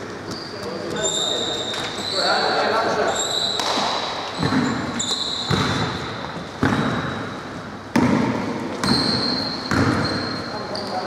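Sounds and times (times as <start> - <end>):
basketball bouncing on wooden floor: 4.4 - 7.2, 7.9 - 10.3.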